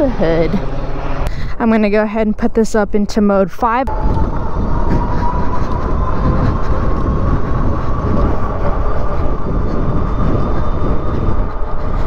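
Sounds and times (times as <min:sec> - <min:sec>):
wind rumble on microphone: 0:00.0 - 0:12.0
electric motor whine: 0:03.9 - 0:12.0.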